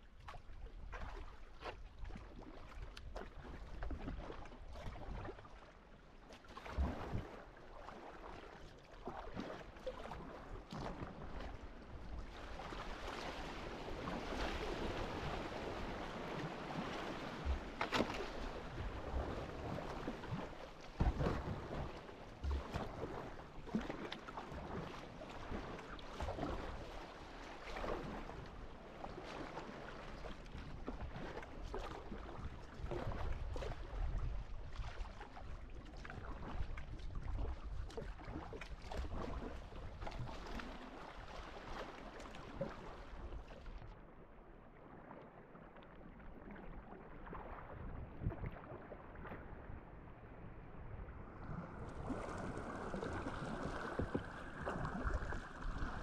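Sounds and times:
paddle splashing in water: 0:00.1 - 0:50.1, 0:51.1 - 0:56.0
small waves washing: 0:00.2 - 0:56.0.

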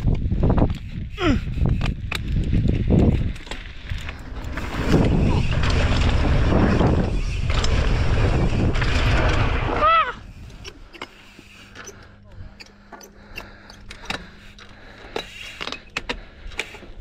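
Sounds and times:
wind buffeting microphone: 0:00.0 - 0:10.7.

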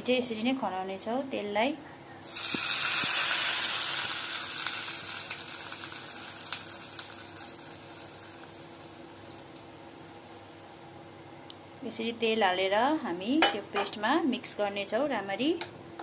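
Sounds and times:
hot oil sizzling: 0:02.2 - 0:10.9.

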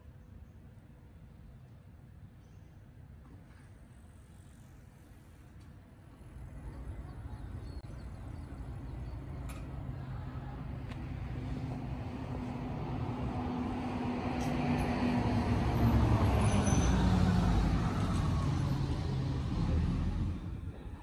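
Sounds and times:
vehicle driving past: 0:08.6 - 0:20.8.

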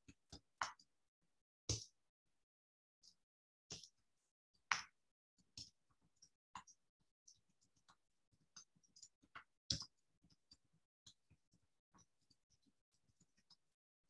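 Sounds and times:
faint clicks and taps on phone line: 0:04.7 - 0:13.7.

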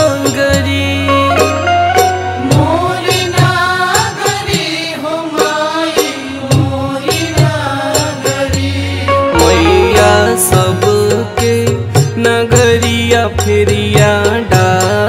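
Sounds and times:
regular drum beat: 0:00.0 - 0:15.0
folk song melody bending in pitch: 0:01.0 - 0:03.0, 0:09.1 - 0:11.4
low sustained bass: 0:08.8 - 0:11.0.

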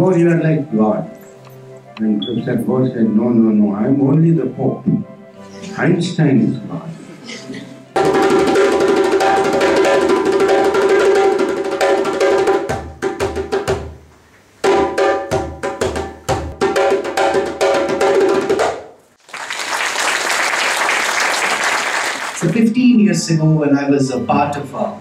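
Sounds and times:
djembe played with hands: 0:08.0 - 0:14.0, 0:14.6 - 0:18.9
applause: 0:19.2 - 0:22.6.

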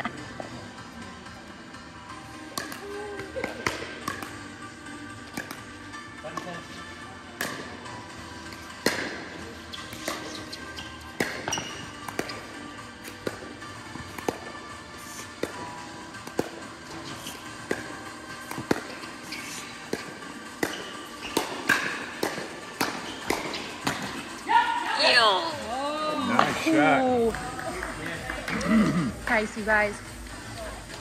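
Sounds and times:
background music: 0:00.0 - 0:31.0
paddles hitting plastic ball: 0:02.5 - 0:04.4, 0:05.2 - 0:05.7, 0:07.4 - 0:07.8, 0:08.5 - 0:14.6, 0:15.3 - 0:16.6, 0:17.6 - 0:19.2, 0:19.8 - 0:24.3.

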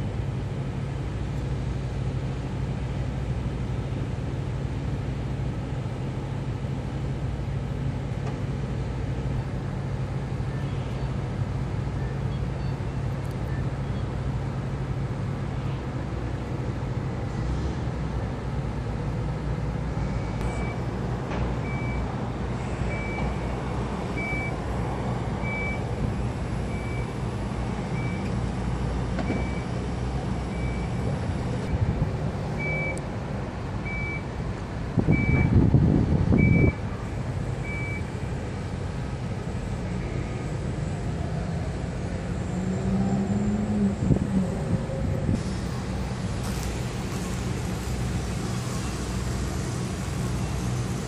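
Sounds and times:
low rumble of engines and traffic: 0:00.0 - 0:51.0
reversing alarm beeping: 0:20.0 - 0:20.8, 0:21.6 - 0:24.6, 0:25.4 - 0:27.2, 0:27.8 - 0:28.3, 0:29.2 - 0:29.8, 0:30.5 - 0:31.8, 0:32.6 - 0:33.0, 0:33.8 - 0:34.3, 0:35.1 - 0:35.6, 0:36.4 - 0:36.9, 0:37.6 - 0:38.1.

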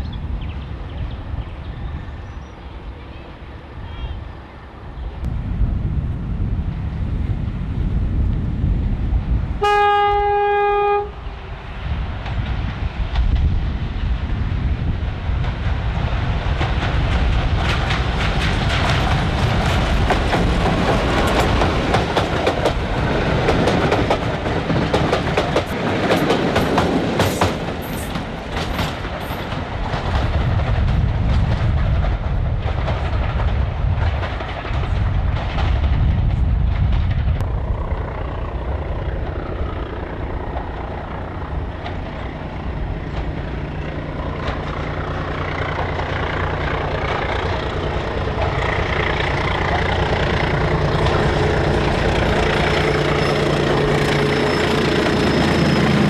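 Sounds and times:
diesel locomotive engine rumble: 0:00.0 - 0:56.0
train wheels clattering over rail joints: 0:14.9 - 0:37.4, 0:39.0 - 0:56.0.

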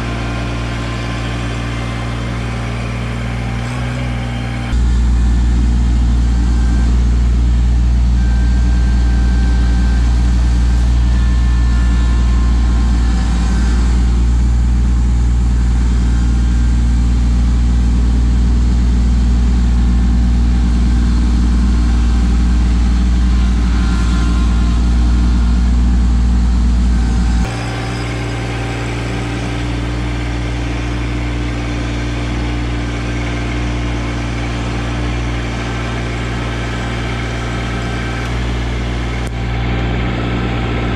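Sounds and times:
tractor diesel engine running: 0:00.0 - 0:40.9.

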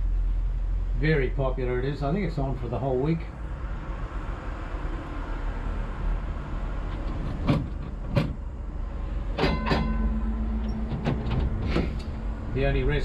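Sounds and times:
tram low rumble: 0:00.0 - 0:13.0
sharp knocks: 0:07.1 - 0:08.4, 0:09.4 - 0:12.2
steady hum: 0:08.4 - 0:13.0
ringing clicks: 0:09.4 - 0:11.0.

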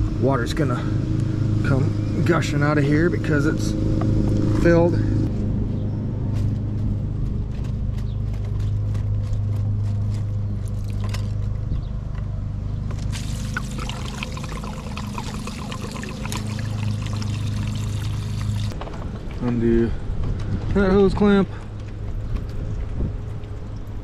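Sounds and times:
lawn mower engine humming: 0:13.0 - 0:18.8
water gushing onto gravel: 0:13.1 - 0:18.8.

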